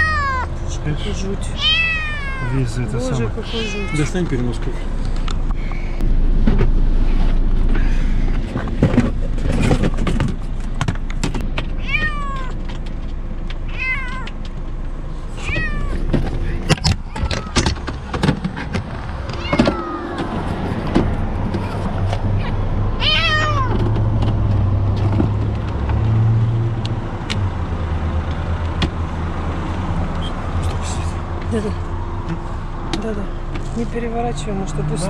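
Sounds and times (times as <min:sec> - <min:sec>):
kitten meowing: 0:00.0 - 0:04.2, 0:11.8 - 0:12.6, 0:13.7 - 0:14.3, 0:15.4 - 0:16.0, 0:19.3 - 0:20.3, 0:22.4 - 0:23.8.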